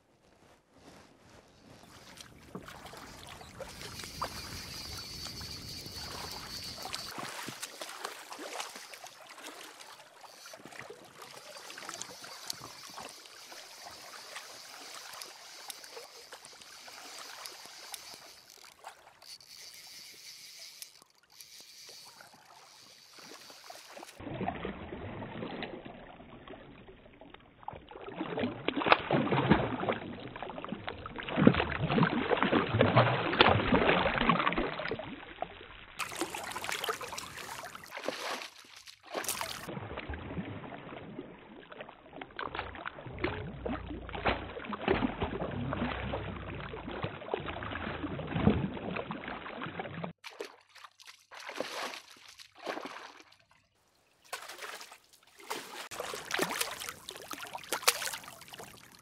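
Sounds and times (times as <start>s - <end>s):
fish thrashing and splashing: 1.9s - 24.2s, 36.0s - 39.7s, 50.2s - 53.3s, 54.3s - 59.0s.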